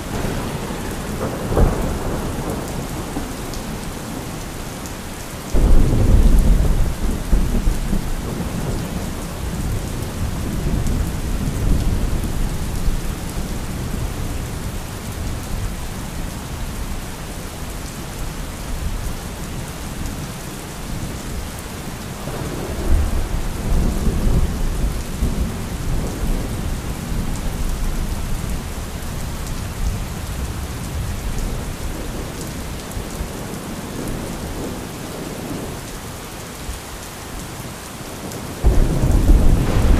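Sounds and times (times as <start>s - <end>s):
rolling thunder: 0.0s - 4.4s, 5.5s - 16.0s, 38.6s - 39.9s
heavy rain: 0.0s - 39.9s.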